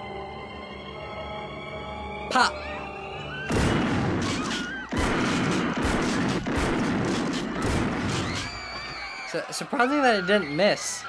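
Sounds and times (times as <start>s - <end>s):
gunshots: 3.5s - 8.8s.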